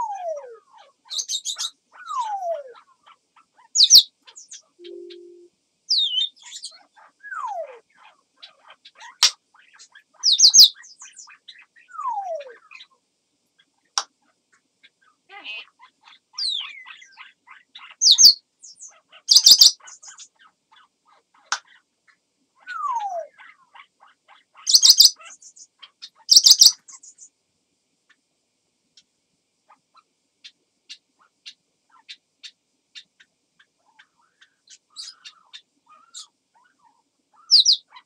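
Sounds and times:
parrot whistles and squeaks: 0:19.3 - 0:19.8, 0:24.7 - 0:25.1, 0:26.3 - 0:26.8, 0:37.5 - 0:37.8.

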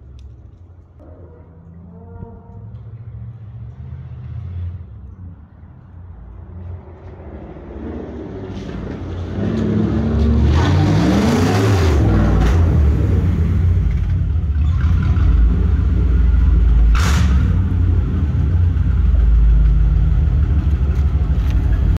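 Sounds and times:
car engine revving: 0:07.5 - 0:21.9
short sharp crack: 0:16.9 - 0:17.6.

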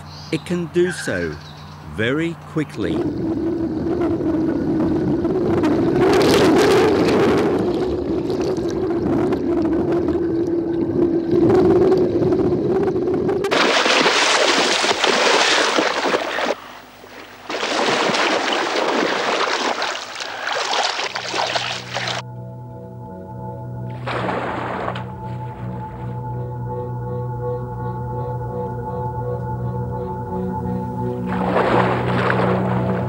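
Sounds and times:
low drone: 0:00.0 - 0:13.6, 0:21.2 - 0:33.0
rushing water: 0:13.5 - 0:16.6, 0:17.4 - 0:22.2, 0:31.3 - 0:33.0.

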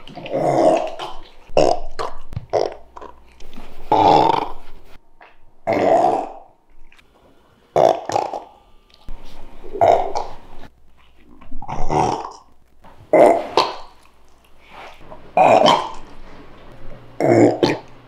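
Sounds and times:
dog burping: 0:00.0 - 0:03.2, 0:07.8 - 0:08.5, 0:09.7 - 0:10.4, 0:11.6 - 0:12.5, 0:15.4 - 0:16.1, 0:17.2 - 0:17.9.

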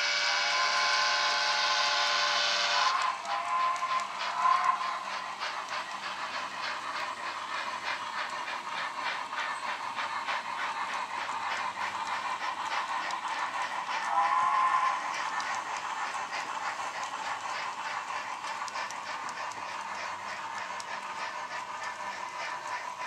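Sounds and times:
steam whistle: 0:00.0 - 0:04.8, 0:14.1 - 0:15.0
model steam locomotive chuffing: 0:00.0 - 0:23.0.

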